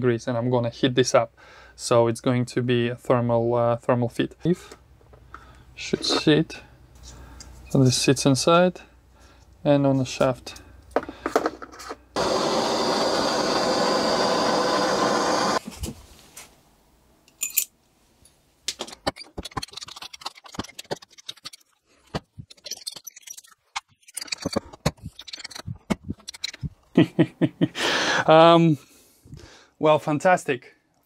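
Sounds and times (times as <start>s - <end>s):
heat gun blowing: 12.2s - 15.6s.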